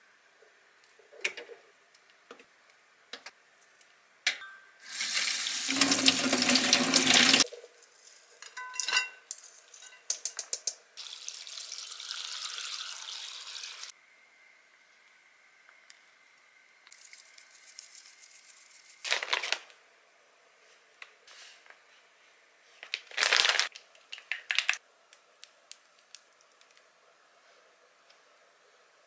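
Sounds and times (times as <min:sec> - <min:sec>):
tap water running into strainer: 0:04.9 - 0:07.5, 0:11.0 - 0:13.9
quiet hiss: 0:13.8 - 0:19.0.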